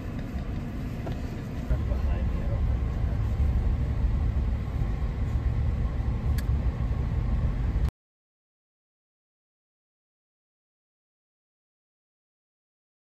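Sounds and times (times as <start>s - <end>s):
car driving on unpaved road: 0.0s - 7.9s.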